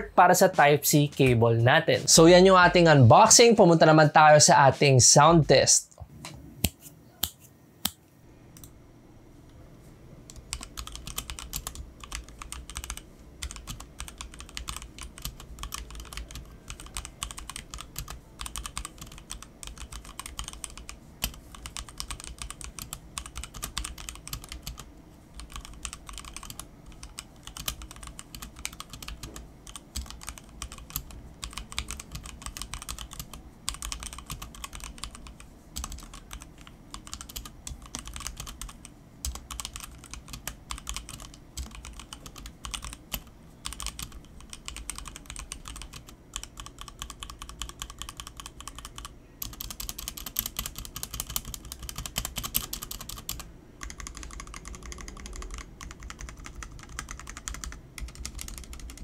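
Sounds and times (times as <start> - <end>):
mechanical keyboard key clacks: 25.4 - 59.0.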